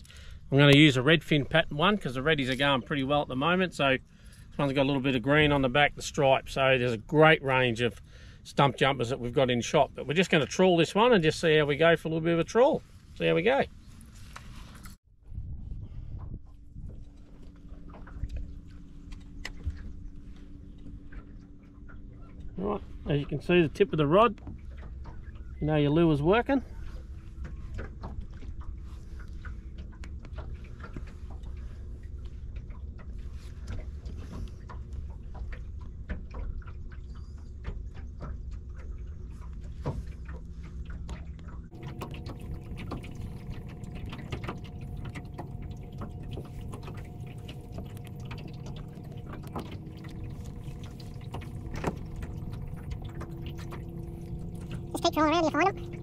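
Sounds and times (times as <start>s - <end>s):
boat motor running: 0.0s - 14.1s, 16.5s - 56.0s
water slapping against hull: 16.1s - 56.0s.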